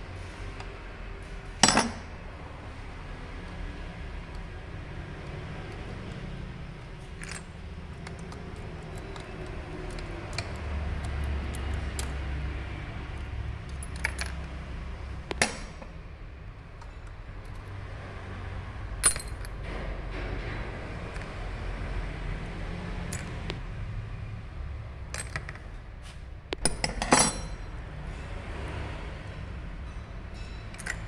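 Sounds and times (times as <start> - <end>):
metal parts clinking: 1.6 - 2.1, 6.8 - 12.2, 13.2 - 14.6, 19.0 - 19.7, 25.1 - 25.8, 26.5 - 27.7, 30.4 - 31.0.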